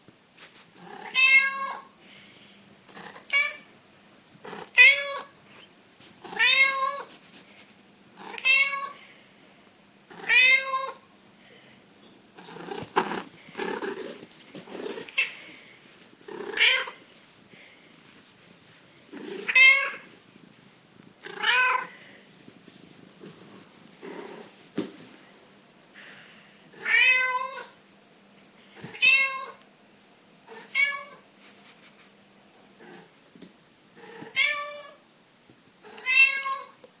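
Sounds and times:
cat meowing: 1.0s - 1.8s, 16.4s - 17.0s, 19.4s - 20.1s, 21.3s - 21.9s, 36.0s - 36.8s
soft rough cat sounds: 4.4s - 9.3s, 10.0s - 25.3s, 30.4s - 33.2s.

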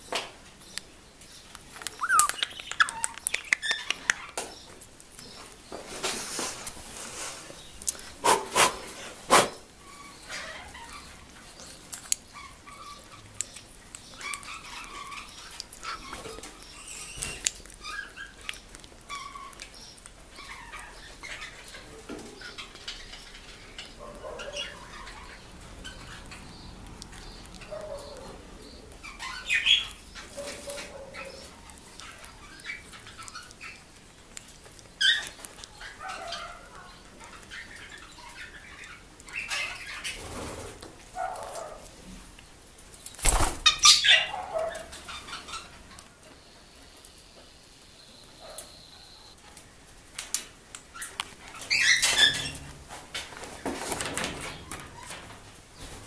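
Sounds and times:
parrots chirping and squawking: 0.6s - 5.4s, 6.0s - 34.0s, 34.8s - 41.8s, 43.1s - 46.2s, 50.9s - 52.7s.

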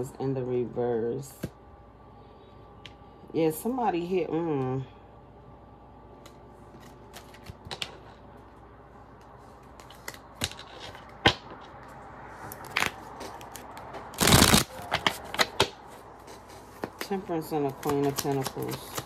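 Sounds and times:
deck of cards rustling: 6.7s - 8.2s, 9.2s - 11.7s, 12.4s - 19.0s
cards tapping and flicking: 16.8s - 19.0s.

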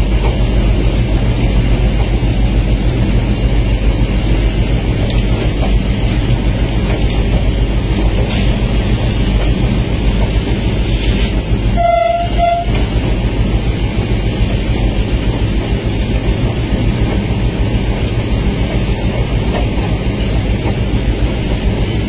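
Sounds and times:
train running rumble: 0.0s - 22.0s
locomotive horn blasts: 11.7s - 13.0s.

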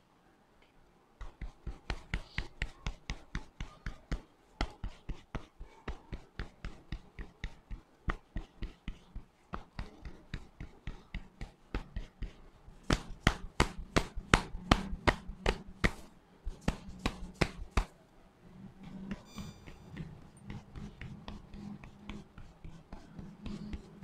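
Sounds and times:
hands patting a head: 1.2s - 18.0s.

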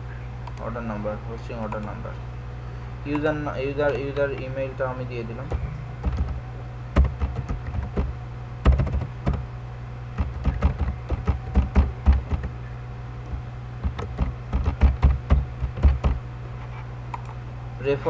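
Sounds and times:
steady low hum: 0.0s - 18.0s
keyboard typing: 1.6s - 2.0s, 3.1s - 4.5s, 5.4s - 6.4s, 7.0s - 9.4s, 10.2s - 12.6s, 13.3s - 16.2s.

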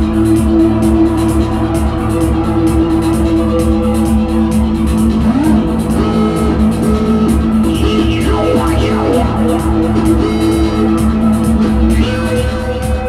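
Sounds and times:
drum machine beat: 0.0s - 13.0s
held synth chords: 0.0s - 13.0s
electric guitar bending notes: 5.0s - 12.3s.

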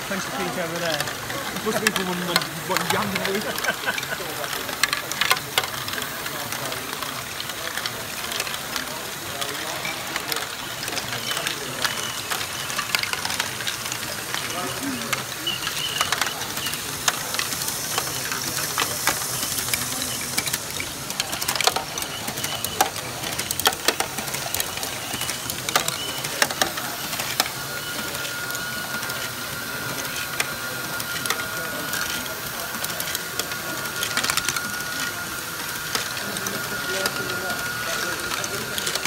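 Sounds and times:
plastic balls clicking: 0.0s - 39.0s
plastic gears whirring and clattering: 0.0s - 39.0s.

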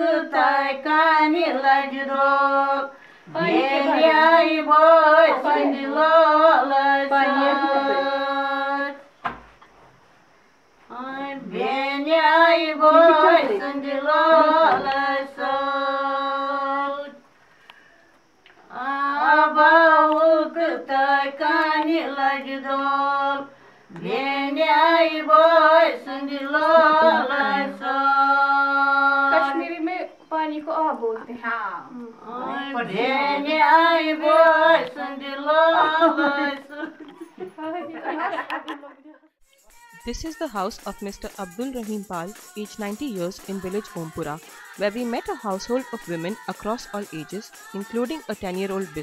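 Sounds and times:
women singing unaccompanied: 0.0s - 9.2s, 10.9s - 17.2s, 18.6s - 38.1s, 39.4s - 49.0s.

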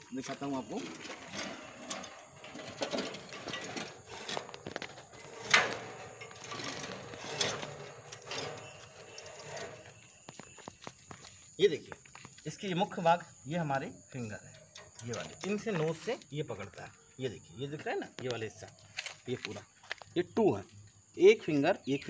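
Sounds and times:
hand-turned mechanism clattering: 0.2s - 10.7s.

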